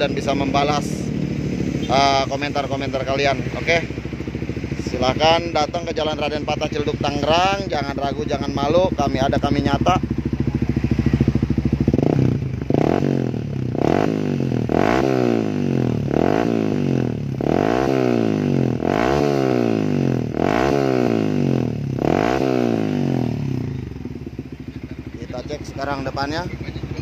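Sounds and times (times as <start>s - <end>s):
motorcycle engine revving: 0.0s - 27.0s.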